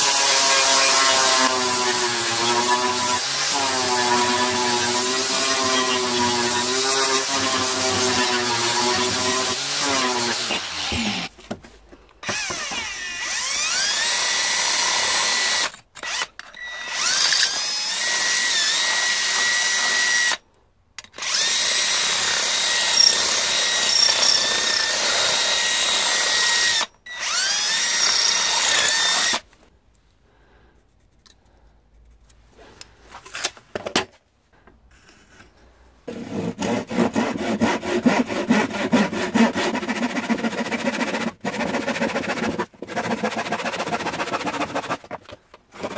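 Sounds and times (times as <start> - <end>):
cordless drill whining through steel: 0.0 - 11.3, 12.2 - 20.4, 21.0 - 29.6
handsaw cutting wood: 0.0 - 11.4, 36.1 - 45.9.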